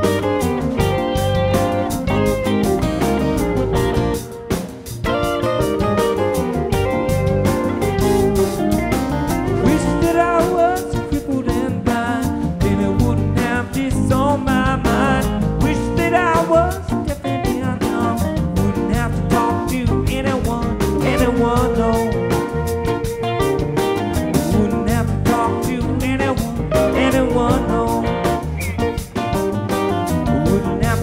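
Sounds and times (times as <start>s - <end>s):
acoustic guitar: 0.0s - 31.0s
drum kit steady beat: 0.0s - 31.0s
electric guitars: 0.0s - 31.0s
man singing: 9.5s - 23.0s, 24.3s - 28.6s, 30.1s - 31.0s.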